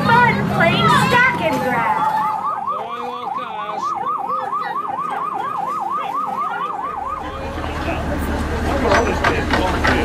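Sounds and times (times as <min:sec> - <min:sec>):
electronic warbling siren: 0:00.8 - 0:08.0.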